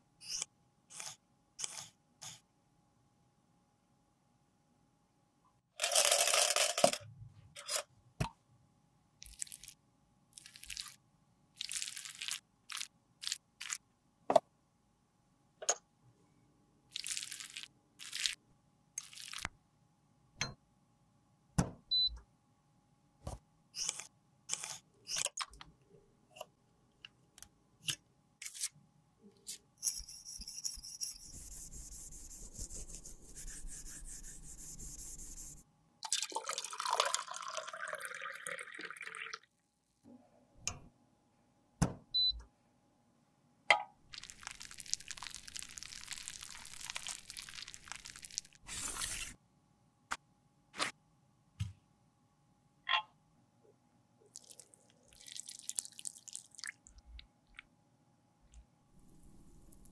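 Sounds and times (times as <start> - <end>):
tools rattling in metal cup: 5.8 - 7.0.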